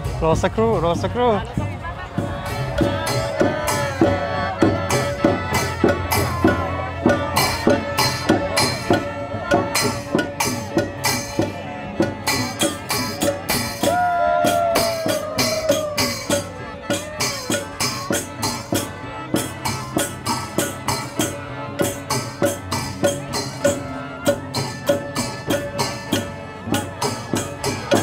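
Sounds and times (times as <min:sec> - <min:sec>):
small cymbals and drum beat: 0:00.0 - 0:28.0
mouth organs droning chord: 0:14.8 - 0:28.0.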